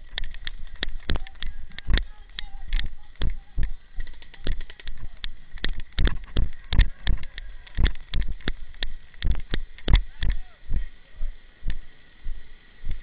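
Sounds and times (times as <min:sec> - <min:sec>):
gear jostling with dull thuds: 0:00.0 - 0:10.1.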